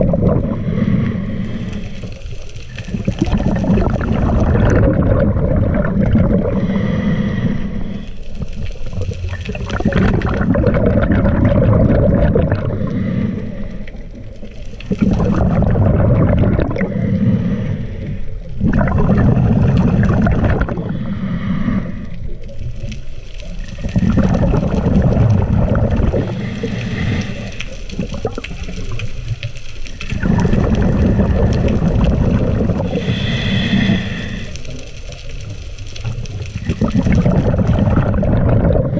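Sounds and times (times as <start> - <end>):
exhaled bubbles gurgling: 0.0 - 38.9
regulator inhale hiss: 0.5 - 2.9, 6.4 - 8.6, 12.6 - 14.1, 16.8 - 18.5, 20.7 - 22.4, 26.2 - 27.9, 32.8 - 35.3.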